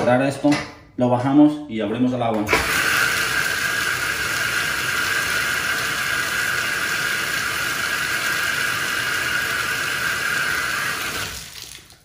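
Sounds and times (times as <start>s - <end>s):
water pouring into bathtub: 2.6s - 12.0s.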